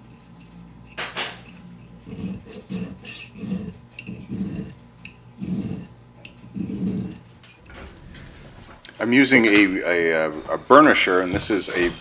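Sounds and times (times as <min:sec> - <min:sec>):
hand file rasping on metal: 0:02.1 - 0:04.8.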